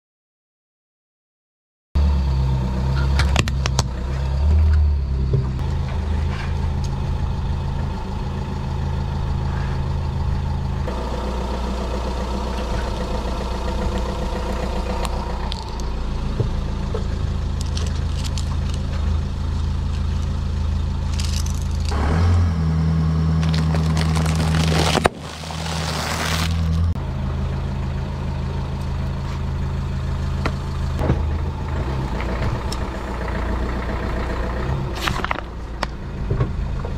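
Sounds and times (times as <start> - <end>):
car engine idling: 3.0 - 36.9
plastic toys crunching under tyre: 23.4 - 27.0.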